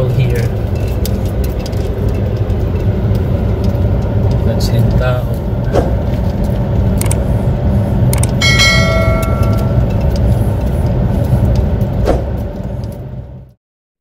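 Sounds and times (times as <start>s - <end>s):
notification bell chime: 8.4s - 9.9s.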